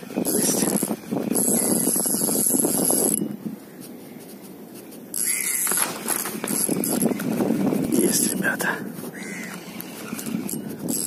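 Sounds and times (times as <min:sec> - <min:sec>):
fishing reel whirring: 0:00.0 - 0:03.4, 0:05.1 - 0:08.4, 0:09.1 - 0:11.0.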